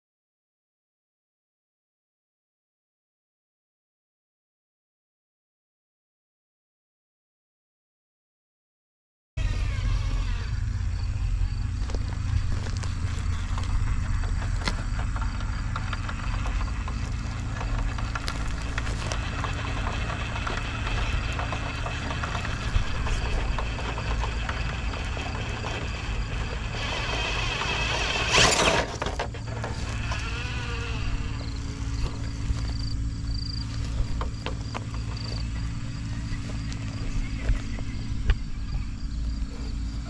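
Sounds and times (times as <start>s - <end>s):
electric motor whine: 9.4s - 40.0s
toy car rumbling over rubble: 9.4s - 40.0s
loud scrape: 18.2s - 32.7s.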